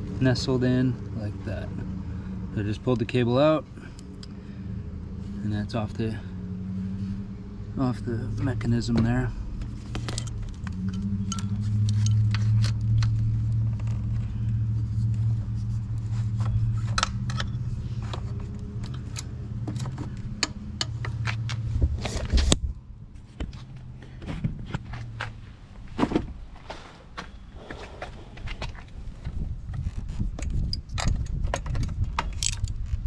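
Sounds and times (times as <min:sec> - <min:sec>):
steady low hum: 0:22.6 - 0:30.3
light metallic clicks and rattles: 0:29.7 - 0:33.0.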